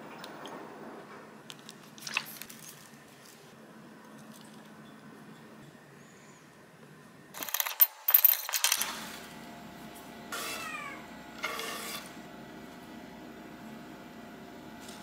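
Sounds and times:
cat meowing: 10.4 - 11.0.

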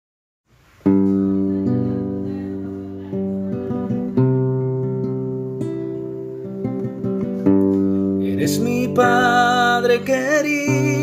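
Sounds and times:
acoustic guitar chords and notes: 0.5 - 11.0.

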